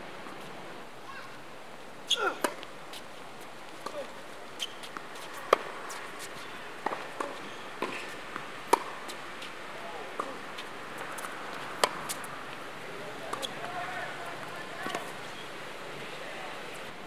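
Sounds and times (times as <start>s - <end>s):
tennis ball bouncing: 2.4s - 2.7s, 3.8s - 6.0s, 6.8s - 9.2s, 11.0s - 12.2s, 13.3s - 13.7s, 14.4s - 15.2s
distant tennis shots: 3.8s - 9.2s, 10.0s - 12.2s, 13.2s - 15.4s
tennis racket hitting ball: 8.7s - 9.0s.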